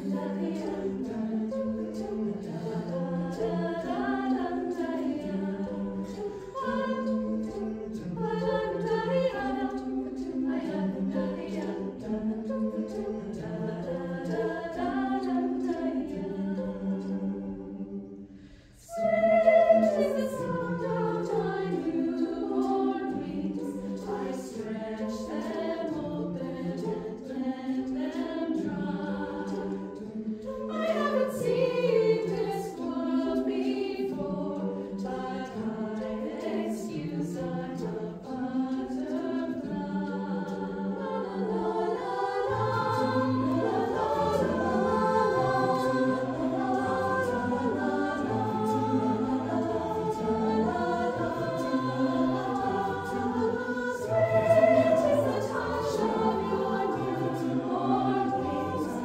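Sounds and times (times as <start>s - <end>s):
mixed choir singing a cappella: 0.0s - 59.0s.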